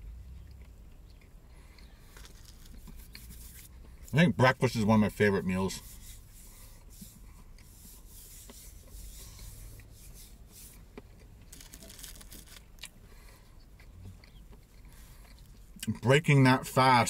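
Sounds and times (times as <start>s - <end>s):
paper crinkling: 2.2s - 3.7s, 11.5s - 12.7s
hands rubbing together: 2.4s - 3.7s, 5.7s - 10.8s.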